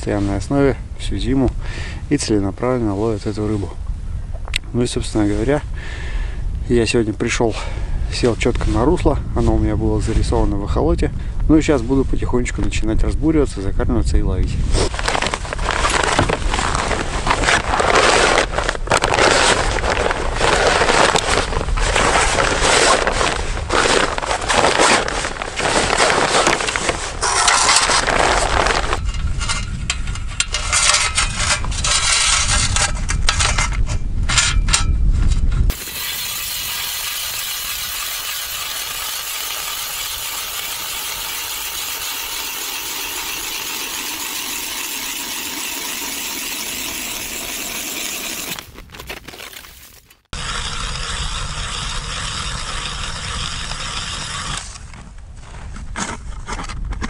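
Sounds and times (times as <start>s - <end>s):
ice auger scraping ice: 14.8s - 29.8s, 35.7s - 55.1s.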